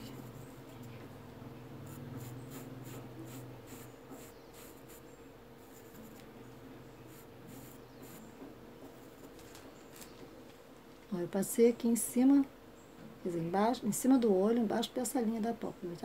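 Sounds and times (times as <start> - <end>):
faint low hum: 0.0 - 16.0
soft scratchy brush strokes: 1.8 - 6.4, 7.0 - 8.3.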